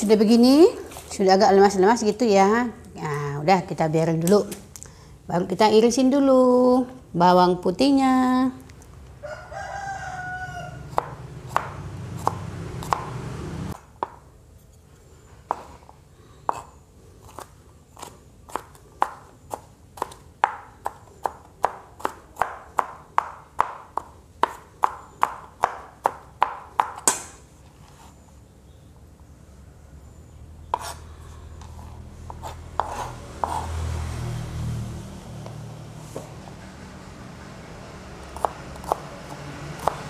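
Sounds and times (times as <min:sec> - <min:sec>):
rooster crowing: 0:09.2 - 0:11.2
knife slicing on cutting board: 0:31.7 - 0:33.8.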